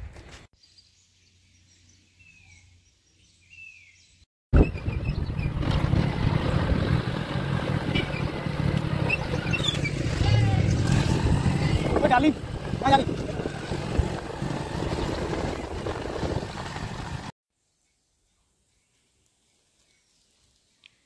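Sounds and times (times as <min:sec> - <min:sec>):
wind noise on microphone: 0:04.6 - 0:07.1, 0:09.1 - 0:17.3
motorcycle engine running: 0:04.6 - 0:17.3.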